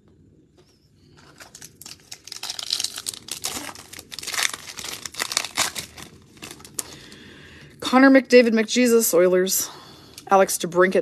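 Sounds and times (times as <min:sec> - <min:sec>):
foil wrapper crinkling and tearing: 0:01.1 - 0:07.2.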